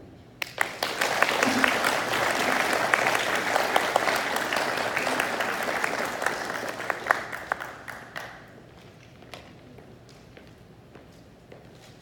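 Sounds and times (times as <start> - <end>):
audience applauding: 0.4 - 8.6.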